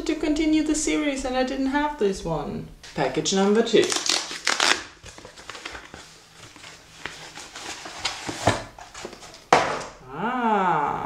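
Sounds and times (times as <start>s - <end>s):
cardboard package crinkling: 2.9s - 10.0s
cardboard tearing: 3.7s - 9.5s.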